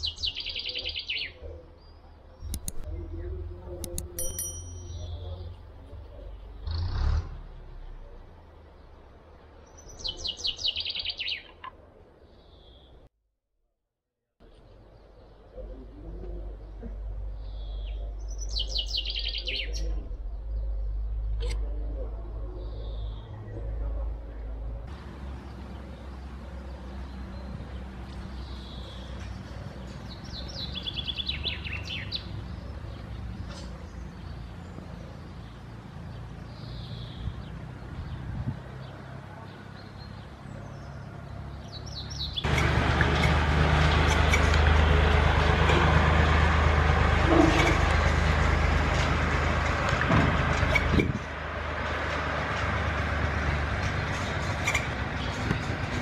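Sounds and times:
small birds chirping: 0:00.0 - 0:06.8, 0:07.7 - 0:13.1, 0:14.4 - 0:42.6.

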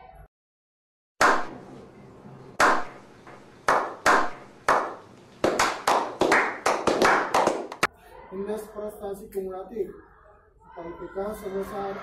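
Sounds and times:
men clapping hands: 0:01.2 - 0:01.5, 0:02.6 - 0:02.9, 0:03.6 - 0:07.9.

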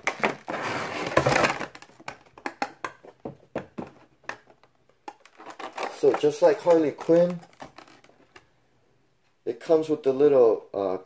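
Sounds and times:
plastic blister tray crinkling: 0:03.8 - 0:08.4.

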